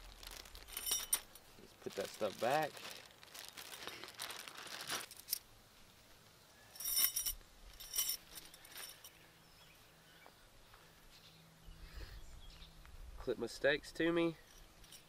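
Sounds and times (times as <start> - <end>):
fabric sack rustling: 0.0 - 5.4
metal tent stakes clinking: 0.0 - 5.5, 6.7 - 9.2, 14.3 - 15.0.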